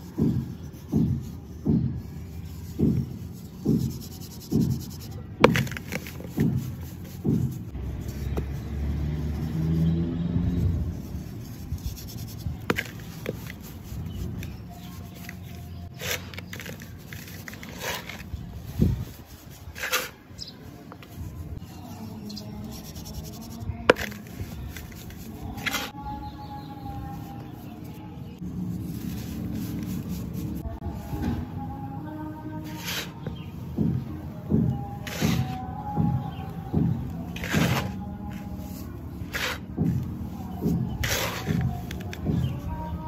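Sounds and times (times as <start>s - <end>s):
hands crunching sand in metal basin: 0.0s - 31.1s, 35.0s - 43.0s
sand clumps crackling: 0.1s - 26.6s, 37.1s - 43.0s.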